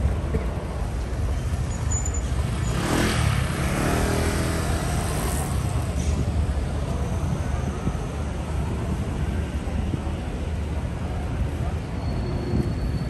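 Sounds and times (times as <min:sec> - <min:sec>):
steady low traffic rumble: 0:00.0 - 0:13.0
vehicle passing and pulling away: 0:01.4 - 0:06.6.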